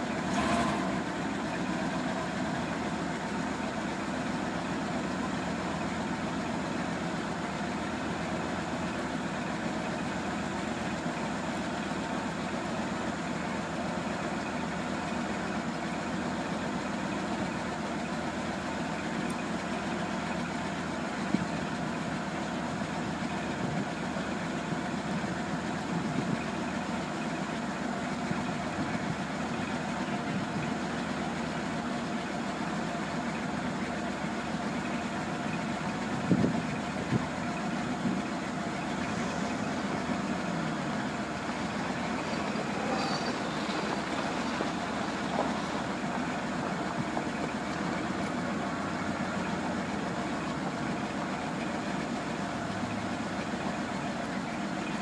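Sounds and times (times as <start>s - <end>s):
truck engine idling: 0.0s - 55.0s.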